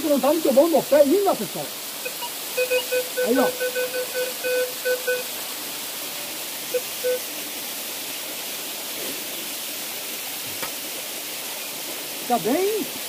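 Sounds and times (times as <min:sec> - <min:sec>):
small waterfall rushing: 0:00.0 - 0:13.0
metal detector beeps: 0:02.0 - 0:05.3, 0:07.0 - 0:07.2.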